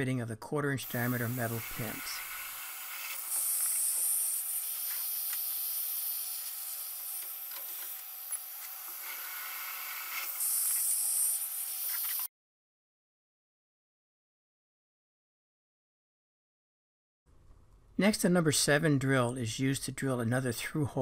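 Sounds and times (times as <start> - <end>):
metal mill drilling brass: 0.8 - 11.6.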